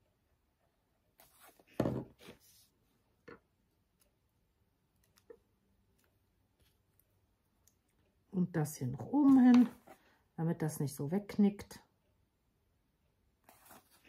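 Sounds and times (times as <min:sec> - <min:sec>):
paper rustling: 0:13.4 - 0:14.0.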